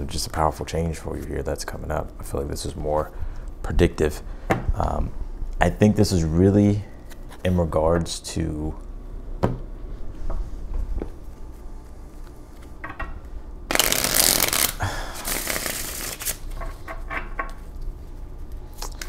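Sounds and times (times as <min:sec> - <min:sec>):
cards shuffled by hand: 0:13.7 - 0:16.6.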